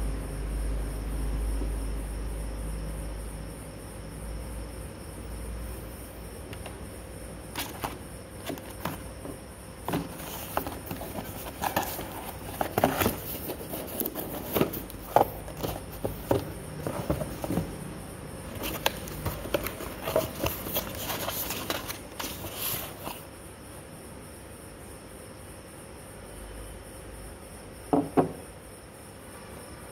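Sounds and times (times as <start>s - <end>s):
cardboard box taps and rustles: 7.6s - 17.8s, 18.5s - 23.2s.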